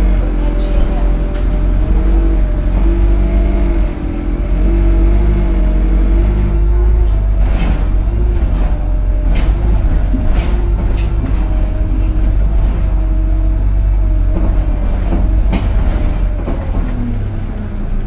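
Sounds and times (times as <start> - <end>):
bus engine rumble: 0.0 - 18.0
humming drivetrain: 0.0 - 18.0
rattles and knocks: 0.4 - 17.4.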